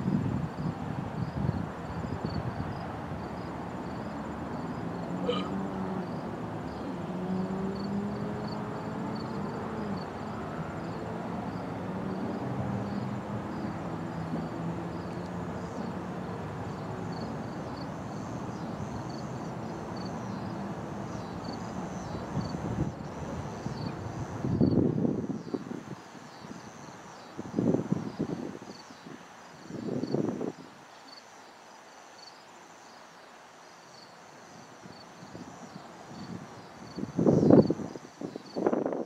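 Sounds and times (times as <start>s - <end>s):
insects chirping: 0.0s - 39.0s
distant road traffic humming: 0.6s - 30.4s.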